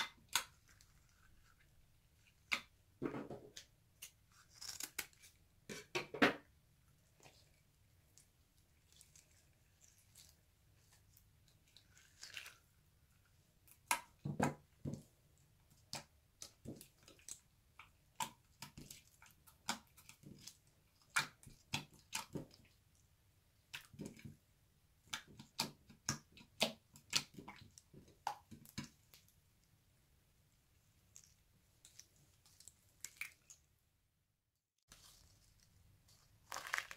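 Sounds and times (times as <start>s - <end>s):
slime squelching: 0.0s - 3.0s, 6.9s - 23.0s, 30.6s - 33.8s, 34.9s - 36.9s.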